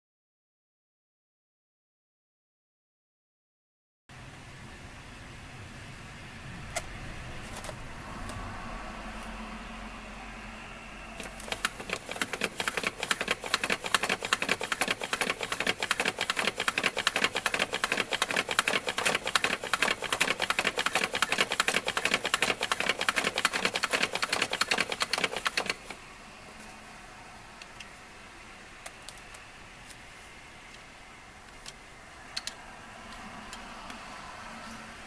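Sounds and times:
plastic crank clicking: 11.2s - 25.9s.

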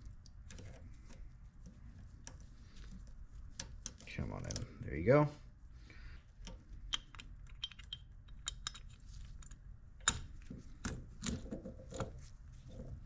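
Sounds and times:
metal housing clicking and knocking: 6.9s - 9.0s.

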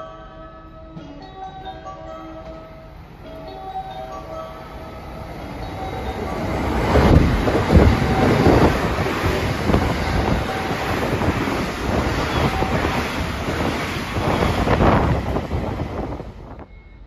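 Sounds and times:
train rushing past: 2.8s - 17.0s
wind buffeting microphone: 5.9s - 16.7s
heavy thumps of train wheels: 6.8s - 16.7s.

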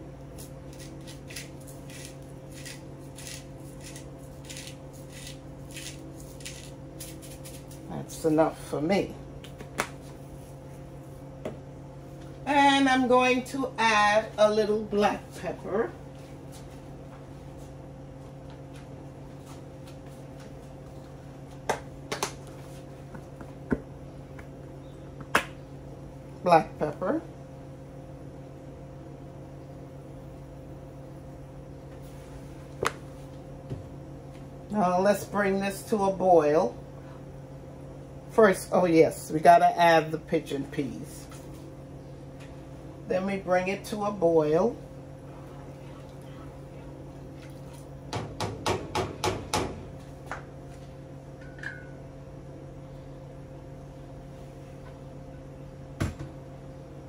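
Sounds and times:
low hum of appliance: 0.0s - 57.0s.

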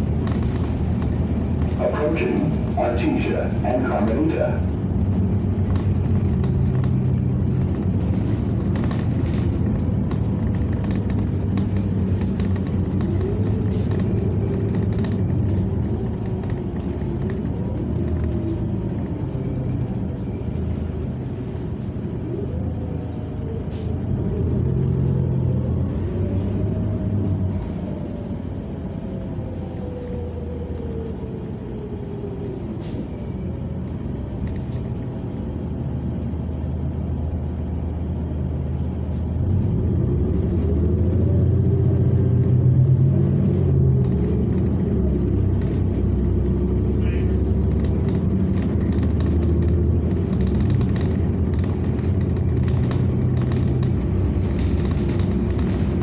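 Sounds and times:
bus engine and road rumble: 0.0s - 56.0s
light clicks and rattles: 4.7s - 21.9s, 44.0s - 56.0s.

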